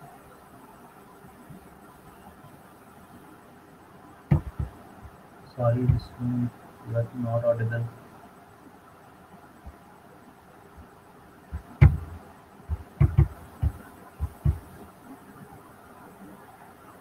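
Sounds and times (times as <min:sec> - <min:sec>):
faint steady hiss: 0:00.0 - 0:17.0
low thumps: 0:04.3 - 0:06.3, 0:11.5 - 0:14.8.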